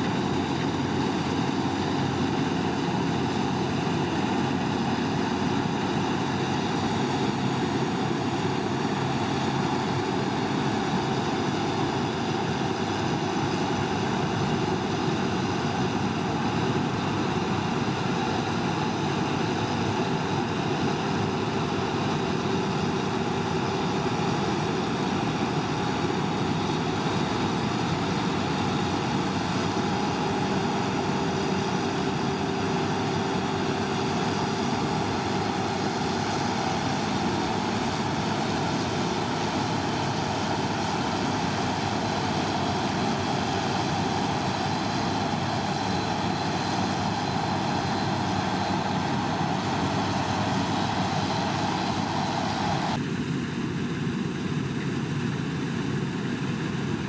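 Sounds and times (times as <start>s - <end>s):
combine harvester running: 0.0s - 57.0s.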